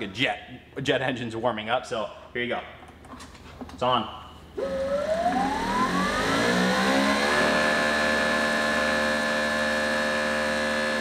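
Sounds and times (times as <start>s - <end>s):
pressure washer motor whine: 4.6s - 11.0s.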